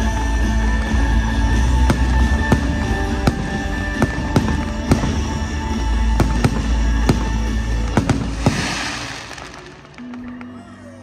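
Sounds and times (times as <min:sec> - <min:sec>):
music: 0:00.0 - 0:11.0
fireworks bursting with sharp bangs: 0:01.5 - 0:10.6
hissing rush: 0:08.1 - 0:10.0.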